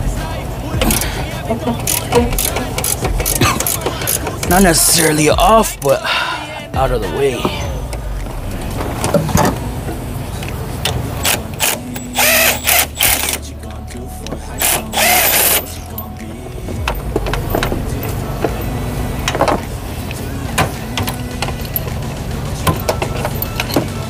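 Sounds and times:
steady low hum: 0.0 - 24.0
hand tools clicking: 0.8 - 5.9, 10.8 - 13.4, 14.6 - 16.2
power tool bursts: 11.2 - 13.4, 14.6 - 15.6.

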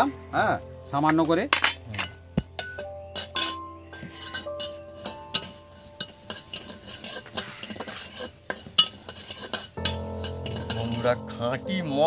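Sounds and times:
metal spatula scraping a pan: 3.1 - 11.3
seeds rattling: 3.2 - 11.2.

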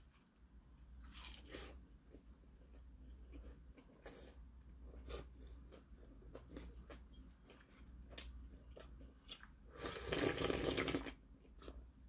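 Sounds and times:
slurp from a dish: 9.8 - 11.2.

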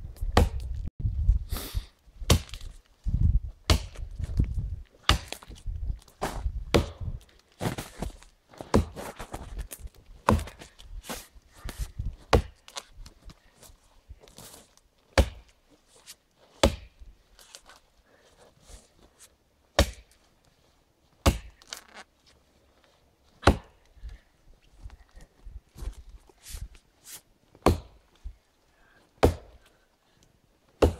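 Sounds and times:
axe chopping tree trunk: 0.3 - 0.8, 2.3 - 2.7, 3.7 - 4.0, 5.0 - 5.6, 6.7 - 7.2, 8.7 - 9.0, 10.2 - 10.6, 12.3 - 12.6, 15.1 - 15.6, 16.6 - 17.0, 19.8 - 20.1, 21.2 - 21.7, 23.4 - 23.8, 27.6 - 28.0, 29.2 - 29.6
shuffling in snow and brush: 2.6 - 19.4, 20.1 - 27.4.

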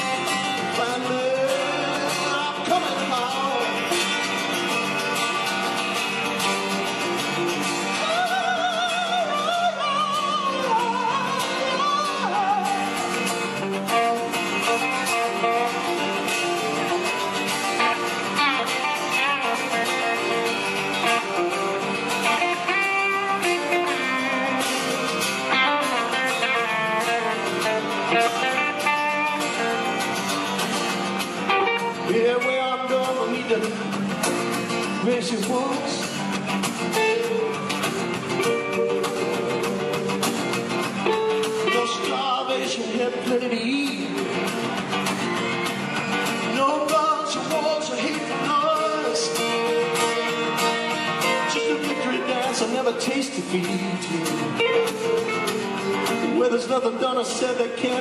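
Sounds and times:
man singing: 0.0 - 4.4, 7.9 - 17.1, 17.8 - 29.9, 31.6 - 36.3, 41.1 - 44.5, 46.4 - 55.3, 55.9 - 58.0
acoustic guitar: 0.0 - 58.0
drums: 0.0 - 58.0
electric guitar: 0.0 - 58.0.

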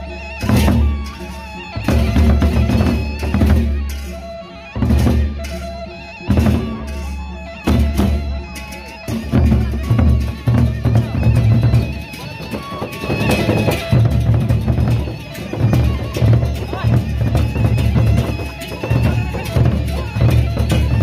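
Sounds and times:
ringing metal percussion: 0.0 - 21.0
barrel drums beaten: 7.7 - 21.0.

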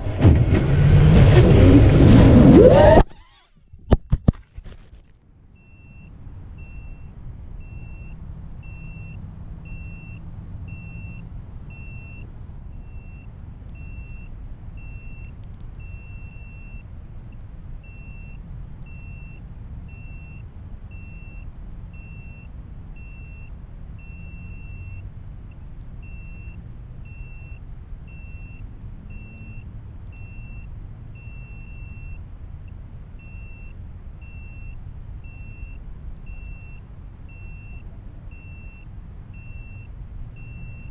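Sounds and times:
short high alarm beeps: 5.6 - 16.9, 17.8 - 25.1, 26.0 - 32.2, 33.2 - 40.9.

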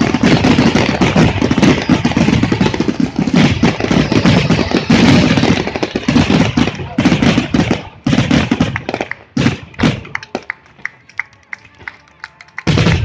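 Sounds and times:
fireworks bursting: 0.0 - 10.9, 12.5 - 13.0.

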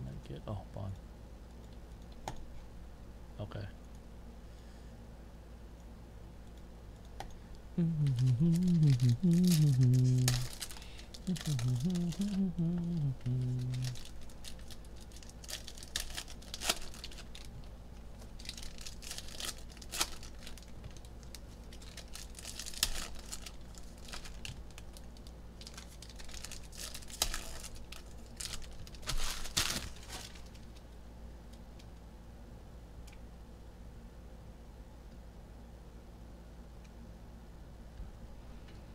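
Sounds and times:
foil wrappers crinkling and tearing: 7.8 - 30.9.

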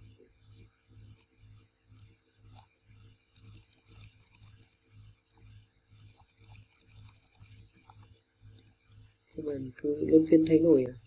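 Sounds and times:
mouse and keyboard clicking: 1.9 - 5.4, 6.0 - 9.6.

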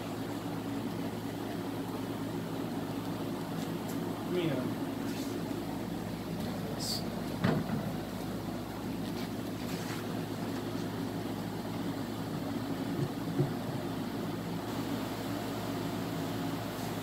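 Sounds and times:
wooden hive frame knock: 12.9 - 13.7.

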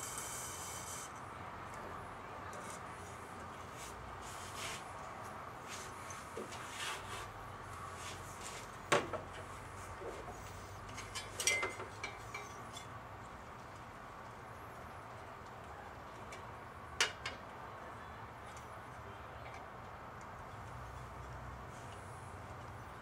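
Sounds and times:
steady background hum: 0.0 - 23.0
tools clicking and knocking: 10.9 - 12.9.

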